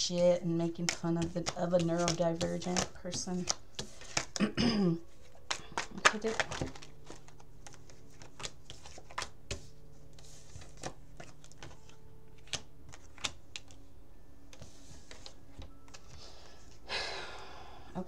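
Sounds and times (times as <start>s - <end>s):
faint steady hum: 9.3s - 18.0s.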